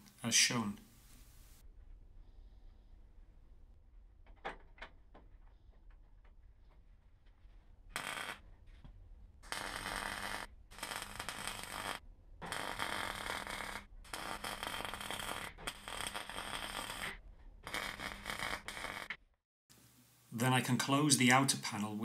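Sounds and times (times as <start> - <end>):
mig welder crackling: 8.0 - 8.4, 9.4 - 19.2.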